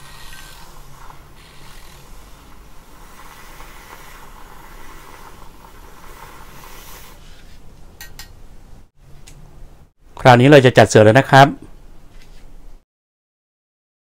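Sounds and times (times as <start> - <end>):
milk frother whirring: 0.0 - 7.4.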